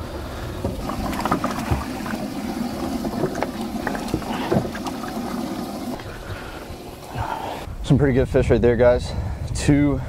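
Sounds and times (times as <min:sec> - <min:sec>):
water and wind hiss: 0:00.0 - 0:08.0.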